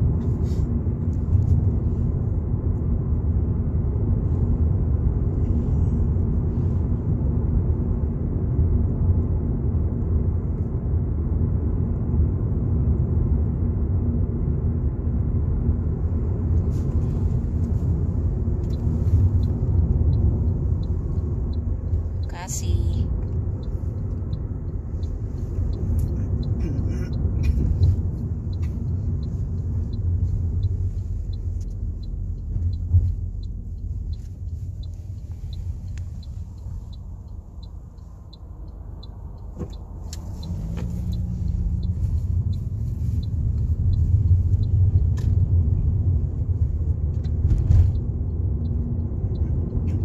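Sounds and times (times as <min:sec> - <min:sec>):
car engine and road rumble: 0:00.0 - 0:50.0
turn signal ticking: 0:15.2 - 0:50.0.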